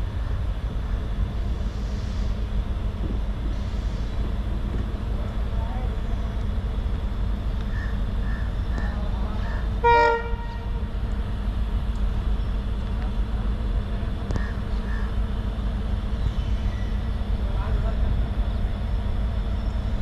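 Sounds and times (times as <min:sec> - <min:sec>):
steady low rumble: 0:00.0 - 0:20.0
locomotive horn blast: 0:09.8 - 0:10.9.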